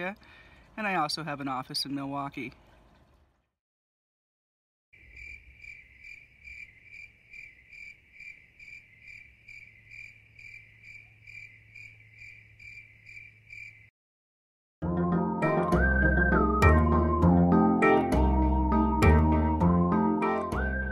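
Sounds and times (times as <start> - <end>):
insect chirping: 5.0 - 13.9.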